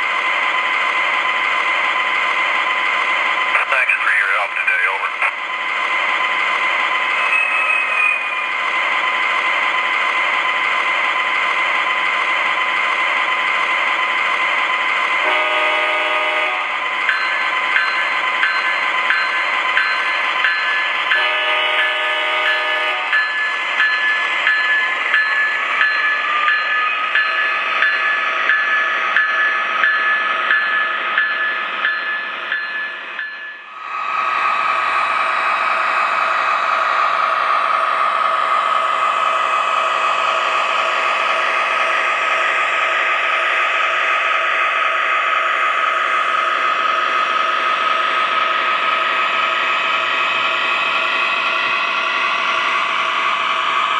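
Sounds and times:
model train diesel engine sound: 0.0 - 53.9
train horn: 15.2 - 16.8, 21.1 - 23.2
train bell ringing: 16.8 - 33.8.

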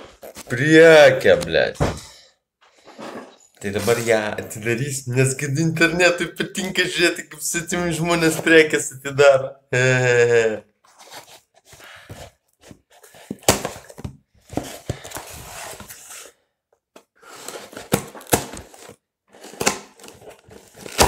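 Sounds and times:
blade cutting and tearing cardboard: 17.2 - 21.0.

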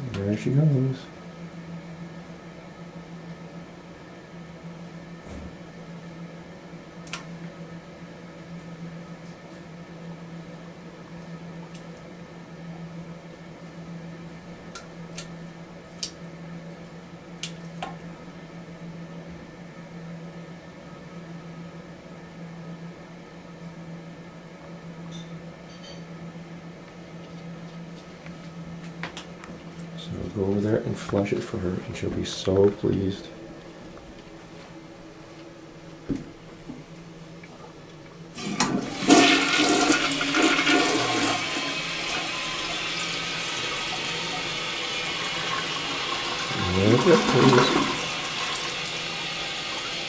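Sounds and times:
steady low hum: 0.0 - 50.0
toilet flush click: 38.4 - 50.0
water rushing into toilet bowl: 38.4 - 50.0.

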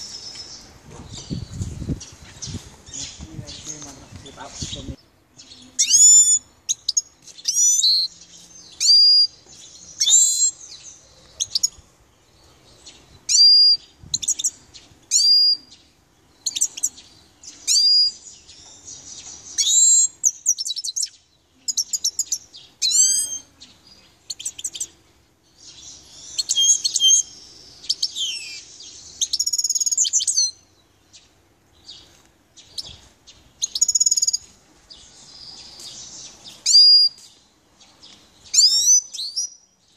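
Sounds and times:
finch singing: 0.0 - 39.9.

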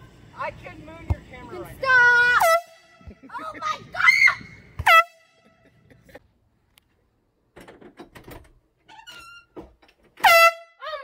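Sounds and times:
air horn blast: 2.3 - 3.0, 4.8 - 5.6, 10.2 - 11.0.

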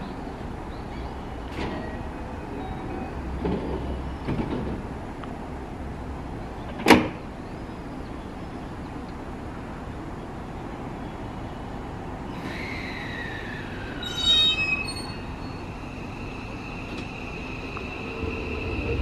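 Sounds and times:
low hum of standing train: 0.0 - 19.0
train sliding doors closing: 0.9 - 5.8, 6.6 - 7.4, 12.2 - 19.0.

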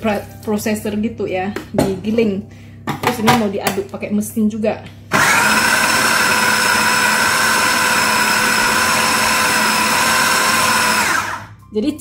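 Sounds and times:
food processor motor running: 5.1 - 11.6.

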